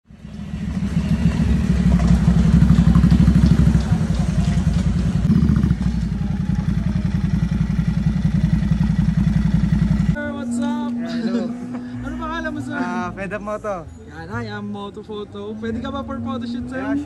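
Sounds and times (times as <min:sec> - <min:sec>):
motorcycle engine throbbing: 0:00.1 - 0:10.9.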